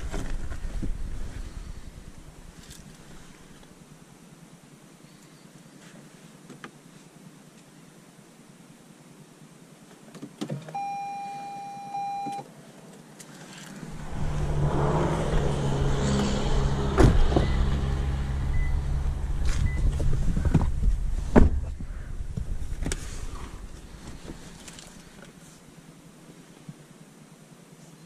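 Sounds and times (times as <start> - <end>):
car low rumble: 0.0 - 4.0, 13.6 - 26.7
car electronic beep: 10.7 - 12.4, 15.5 - 20.1.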